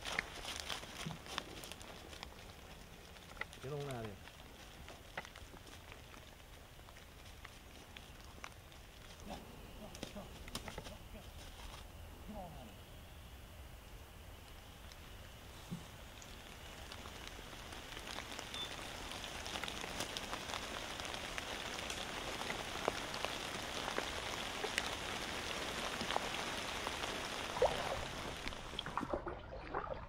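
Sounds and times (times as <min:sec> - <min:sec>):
dry leaves crackling and rustling: 0:00.0 - 0:11.9, 0:14.6 - 0:28.9.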